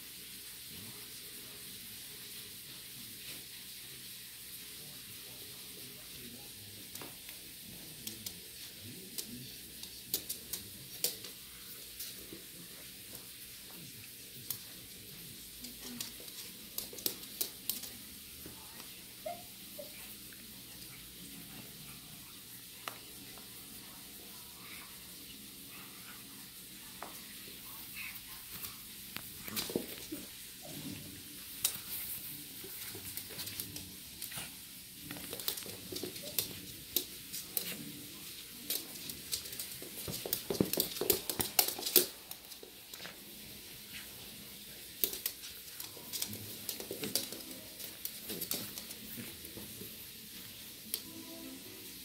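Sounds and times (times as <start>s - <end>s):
dog claws clicking on wood floor: 9.1s - 11.4s, 15.6s - 18.1s, 35.1s - 43.2s, 44.7s - 49.8s.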